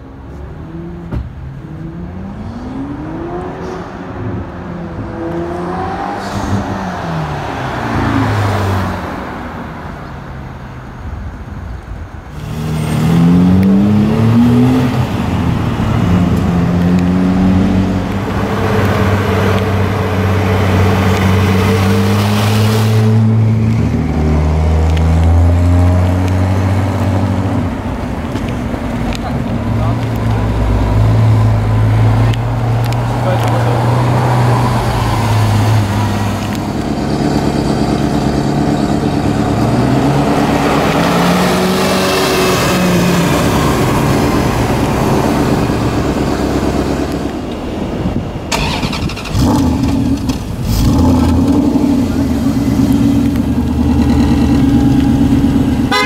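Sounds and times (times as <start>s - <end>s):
car engine revving: 12.4s - 56.0s.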